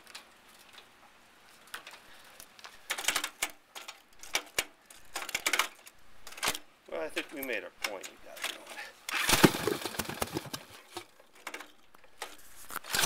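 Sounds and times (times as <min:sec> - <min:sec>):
engine pops and clatters: 0:09.3 - 0:11.0.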